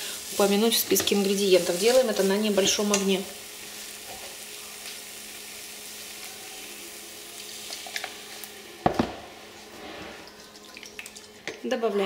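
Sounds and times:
roux sizzling in frying pan: 0:00.0 - 0:11.4.

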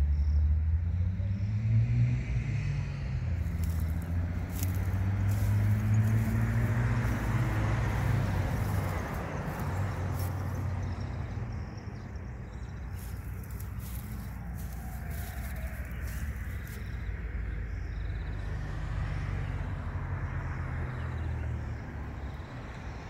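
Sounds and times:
vehicle engine humming: 0:00.6 - 0:23.0.

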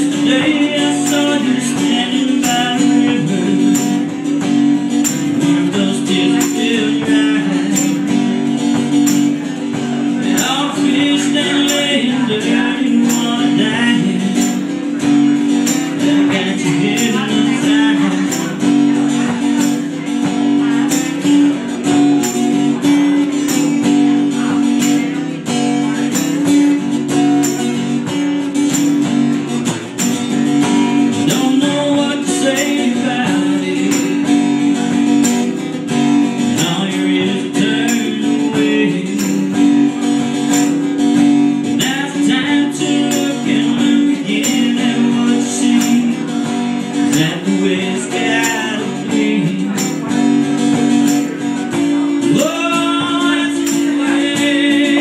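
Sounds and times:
acoustic guitars strummed: 0:00.0 - 0:55.0.

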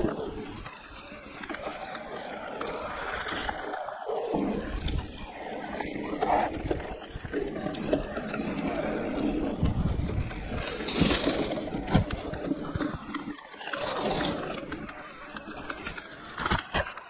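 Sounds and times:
bike rattling: 0:00.0 - 0:17.0
tyres rolling on dirt: 0:00.0 - 0:17.0.

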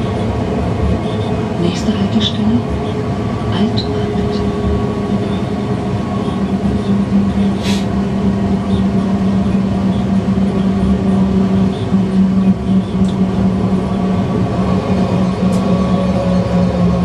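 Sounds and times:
tram electric drive hum: 0:00.0 - 0:17.0
wheels rumbling on rails: 0:00.0 - 0:17.0
brief hiss: 0:07.6 - 0:07.9.

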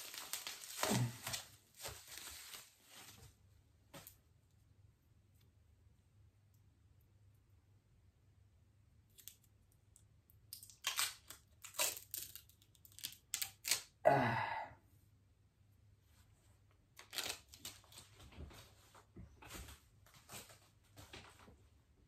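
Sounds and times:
packaging tearing and rustling: 0:00.0 - 0:03.1, 0:10.5 - 0:13.9, 0:17.0 - 0:18.1.

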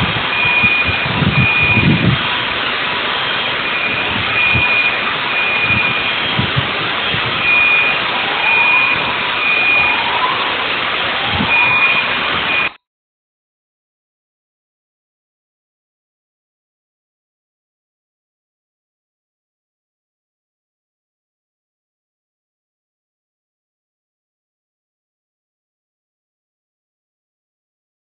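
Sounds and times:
low rumbles: 0:00.0 - 0:12.7
steady rush of noise: 0:00.0 - 0:12.8
electronic alarms beeping: 0:00.3 - 0:10.7, 0:11.4 - 0:12.8.

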